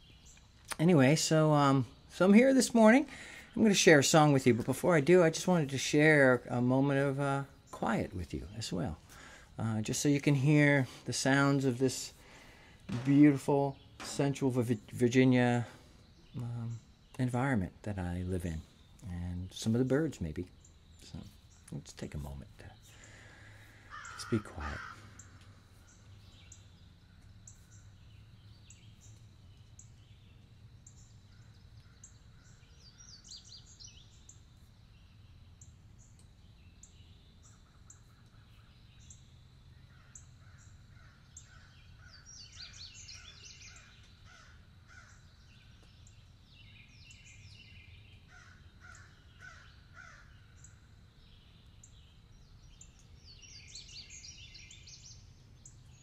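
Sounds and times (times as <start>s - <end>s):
small birds chirping: 0.0s - 56.0s
crows cawing: 23.0s - 25.6s, 39.9s - 42.3s, 43.2s - 45.3s, 48.3s - 50.7s.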